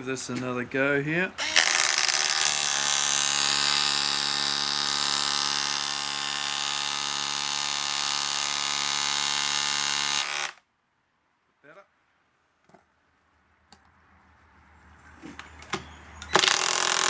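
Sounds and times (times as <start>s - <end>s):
impact driver hammering: 16.3s - 17.0s.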